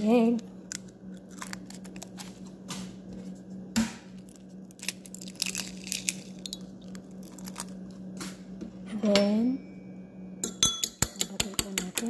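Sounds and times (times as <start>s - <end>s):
eggshell crackling: 0.4s - 2.6s, 4.2s - 8.2s.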